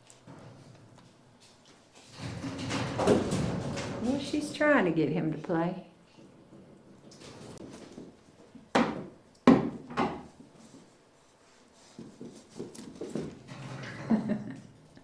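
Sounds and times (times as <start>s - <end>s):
knocks and thumps on wood: 8.7s - 10.3s.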